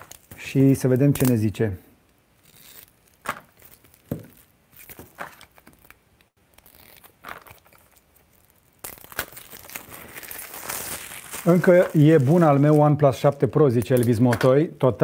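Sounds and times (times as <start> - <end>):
paper tearing and crinkling: 6.5 - 13.0.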